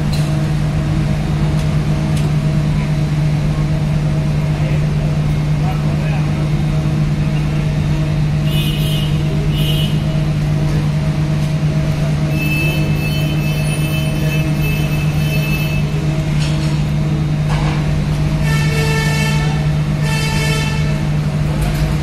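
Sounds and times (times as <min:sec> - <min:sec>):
large engine droning: 0:00.0 - 0:22.0
horn toots: 0:08.4 - 0:10.2, 0:12.3 - 0:15.8, 0:18.4 - 0:21.0.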